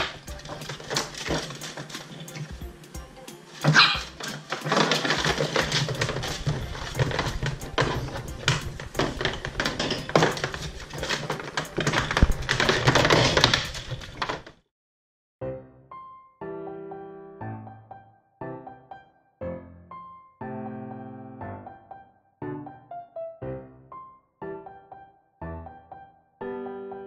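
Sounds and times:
puppy claws clicking and scratching: 0.0 - 2.6, 3.6 - 14.5.

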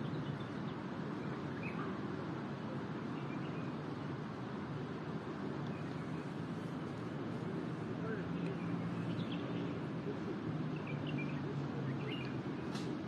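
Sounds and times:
faint bird chirps: 1.6 - 1.9.

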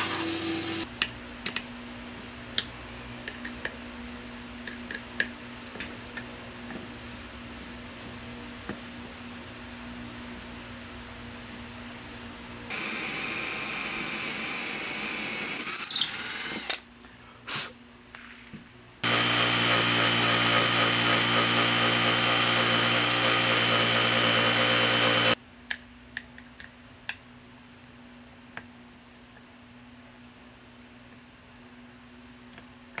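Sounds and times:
power tool running: 0.0 - 0.8, 12.7 - 16.8, 19.0 - 25.4
cordless drill boring into wood: 12.7 - 16.8, 19.0 - 25.4.

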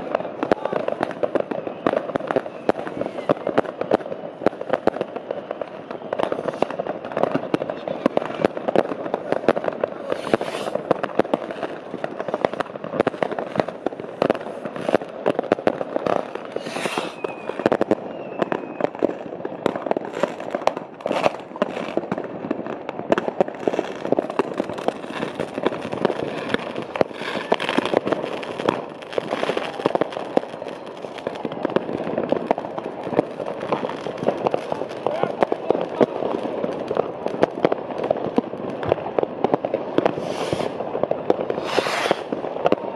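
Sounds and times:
fireworks crackling and banging: 0.0 - 42.9
short hiss: 10.1 - 10.8, 16.6 - 17.2, 40.2 - 40.8, 41.6 - 42.3.

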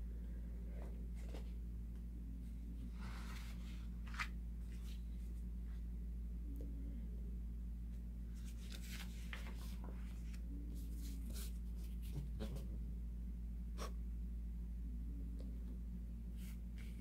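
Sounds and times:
steady low hum: 0.0 - 17.0
paper pages turning: 3.1 - 5.0, 8.3 - 12.6.

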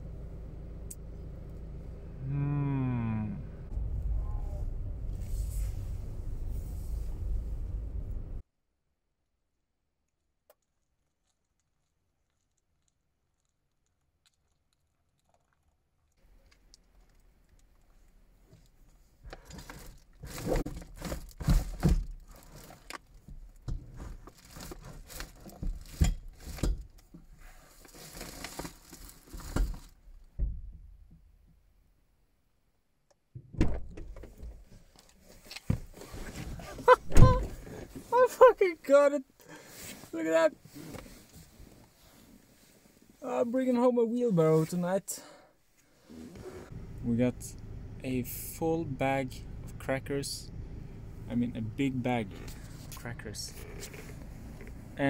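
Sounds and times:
person climbing into car: 19.2 - 31.2, 33.4 - 38.2.

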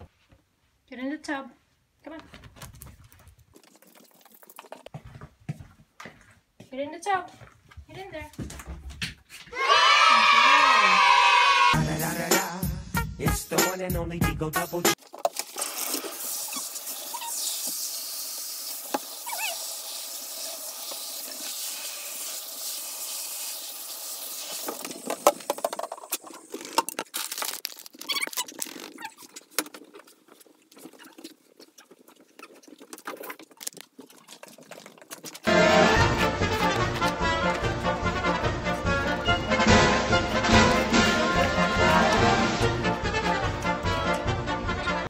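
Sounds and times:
water running from bathtub tap: 15.3 - 26.2.

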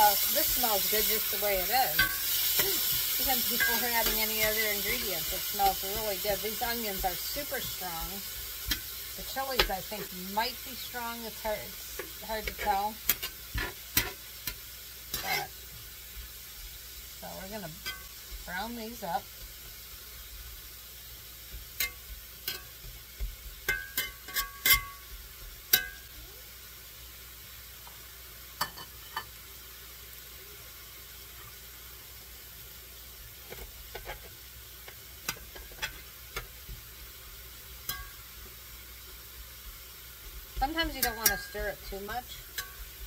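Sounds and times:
metal spatula scraping a pan: 0.0 - 15.6, 17.6 - 19.5, 21.8 - 23.0, 23.6 - 26.0, 33.5 - 34.4, 35.2 - 36.6, 40.6 - 43.0
onions sizzling in a skillet: 0.0 - 43.0.

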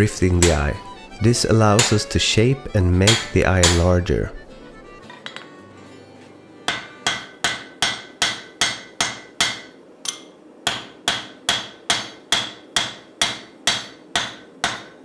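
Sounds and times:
hammer striking metal on anvil: 0.3 - 0.8, 1.7 - 2.1, 3.0 - 4.0, 5.0 - 5.6, 6.7 - 15.0.

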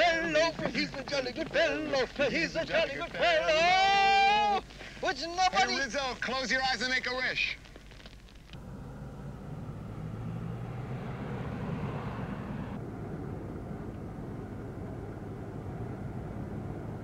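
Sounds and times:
road noise: 8.5 - 17.0
car cabin drone while driving: 8.6 - 17.0
car engine running: 8.6 - 17.0.

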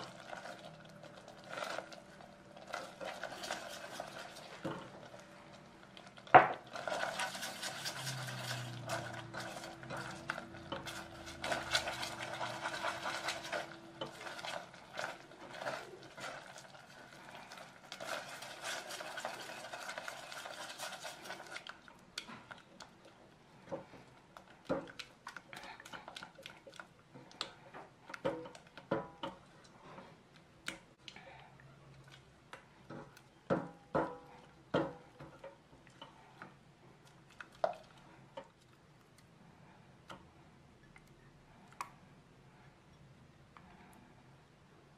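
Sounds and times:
spatula scraping steel pot: 6.6 - 21.7.

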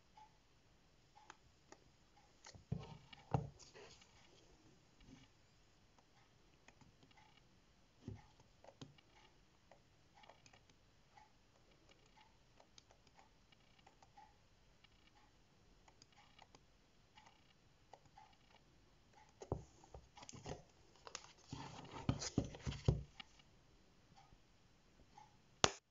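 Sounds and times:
paper folding clicks and taps: 19.3 - 23.4.

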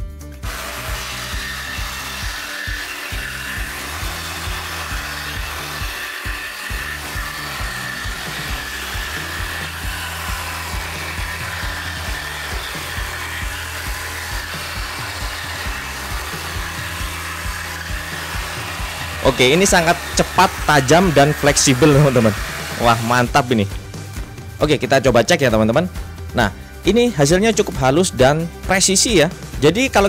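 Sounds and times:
background music with steady beat: 0.0 - 30.0
jigsaw cutting wood: 0.4 - 24.3.

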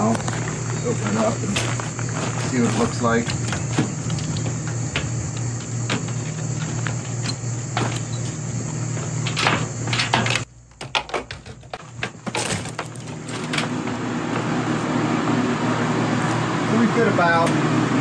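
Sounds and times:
circulation fans whirring: 0.0 - 18.0
door swinging open: 0.8 - 14.0
metal door latches clanking: 2.4 - 8.4, 9.2 - 14.0.

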